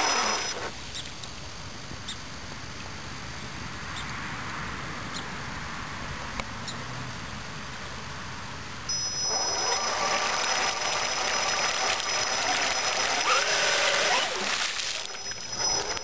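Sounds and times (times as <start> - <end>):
high electric whine: 0.0 - 0.9, 8.9 - 16.0
tires churning and splashing water: 8.9 - 16.0.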